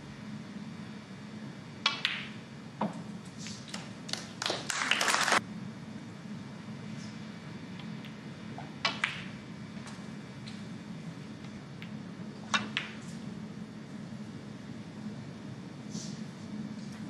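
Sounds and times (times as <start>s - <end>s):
low room tone hum: 0.0s - 17.0s
snooker balls clicking: 1.8s - 3.0s, 8.8s - 9.4s, 11.4s - 13.1s.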